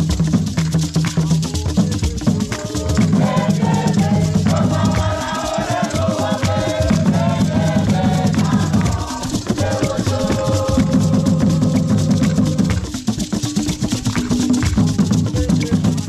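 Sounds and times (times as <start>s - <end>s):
barrel drums playing fast rhythm: 0.0s - 16.0s
voices singing together: 1.8s - 13.1s.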